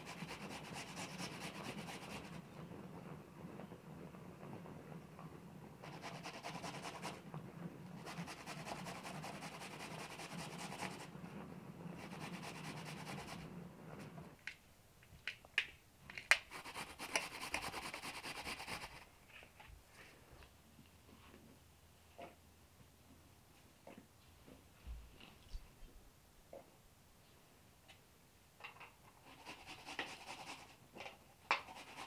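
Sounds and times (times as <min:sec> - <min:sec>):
sharp clicks and scrapes: 0:16.1 - 0:19.7.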